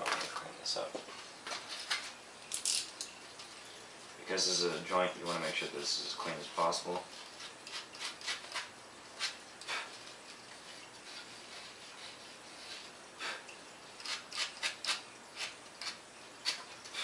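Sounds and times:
hand tool scraping foam: 6.3 - 13.0, 14.0 - 17.0.

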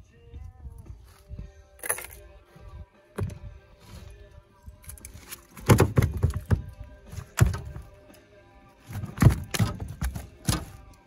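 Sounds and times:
background music with held tones: 0.0 - 11.0
dull thumps: 3.2 - 3.5, 5.6 - 7.9, 8.9 - 10.8.

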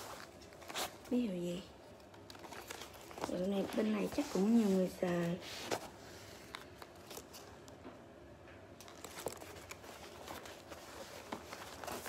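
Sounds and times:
fabric bag rustling: 2.1 - 7.5, 8.8 - 12.0.

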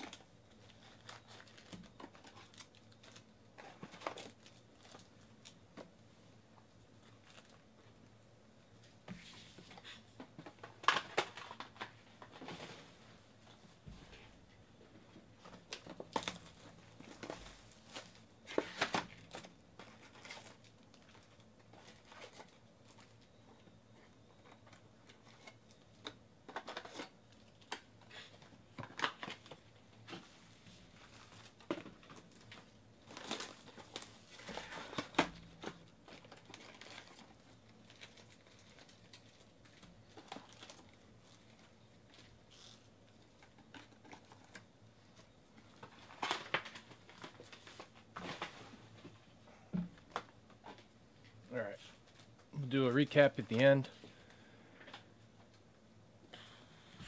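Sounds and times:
plastic wrap crinkling: 0.0 - 5.6, 30.8 - 44.6.

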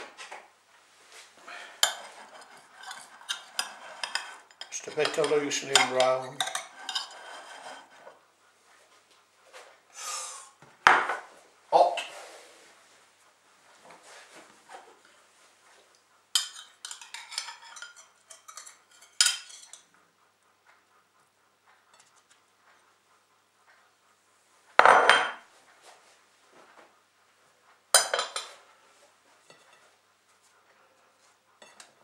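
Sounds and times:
knife scraping china plates: 1.5 - 8.2, 16.4 - 19.9, 28.0 - 28.8, 29.4 - 29.9, 31.6 - 32.0
plate clatter: 1.7 - 8.2, 16.4 - 19.9, 24.8 - 25.4, 28.0 - 28.6, 29.4 - 29.9, 31.6 - 31.9.

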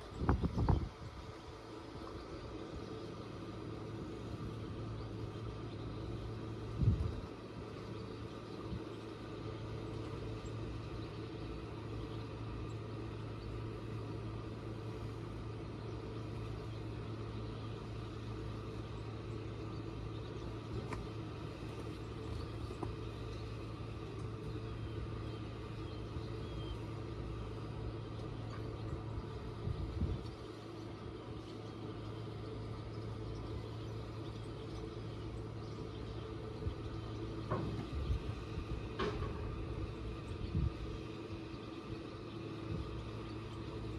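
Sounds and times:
boat motor idling: 0.0 - 40.9.

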